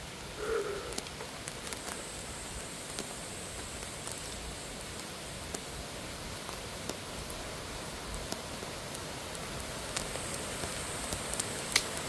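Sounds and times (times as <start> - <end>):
background hiss: 0.0 - 12.0
twig snaps: 10.0 - 12.0.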